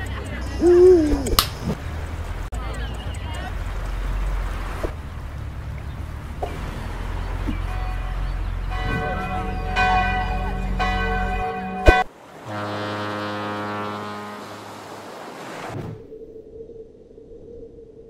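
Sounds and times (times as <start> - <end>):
sharp crack: 1.2 - 1.9
deep foghorn blast: 7.3 - 15.4
church bells ringing: 7.8 - 12.1.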